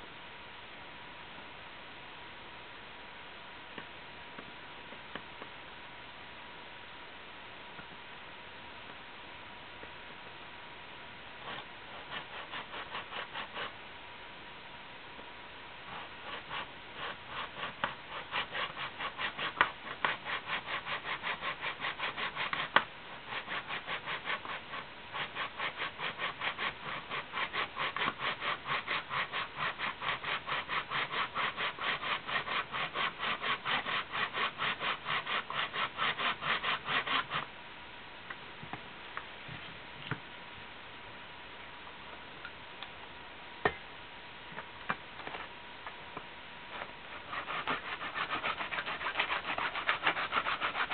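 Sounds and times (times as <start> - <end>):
hand tool rasping strokes: 11.5 - 13.7, 15.9 - 37.5, 46.8 - 50.9.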